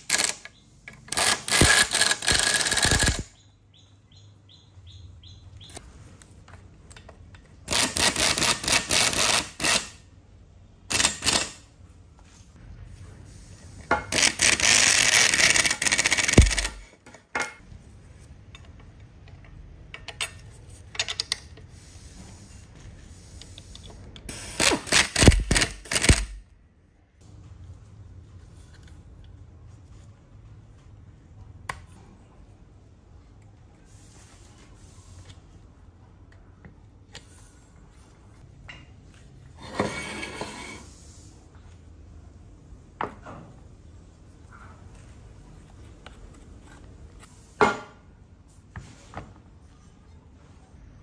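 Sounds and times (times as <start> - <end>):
power screwdriver whirring and clicking: 1.1 - 3.3, 14.2 - 16.8, 24.3 - 26.4.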